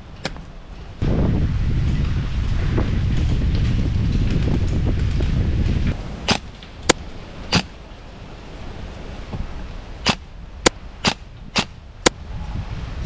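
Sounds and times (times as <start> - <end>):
airsoft gun single shots: 10.0 - 11.8.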